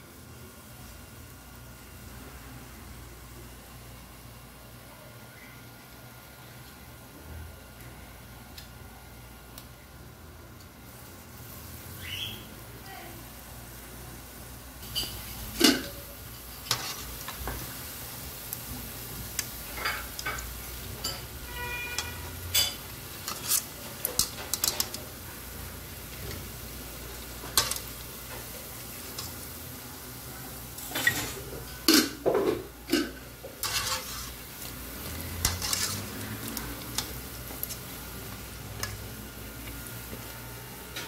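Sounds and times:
oil sizzling: 0.0 - 41.0
metal utensil scraping pot: 21.0 - 25.0, 32.9 - 34.4, 35.3 - 36.4.

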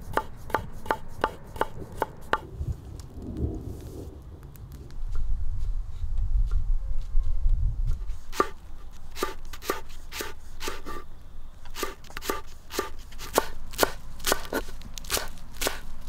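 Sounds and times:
knife chopping on wooden board: 0.1 - 2.4, 8.3 - 8.6, 9.2 - 11.0, 11.8 - 15.8
low rumble: 1.8 - 8.0.

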